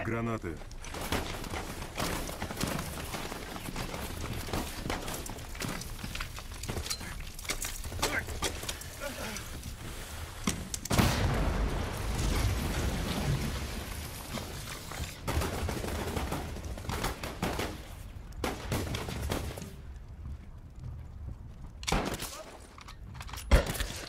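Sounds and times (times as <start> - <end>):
loud explosion: 10.9 - 13.6
rifle and machine-gun fire: 15.2 - 19.6.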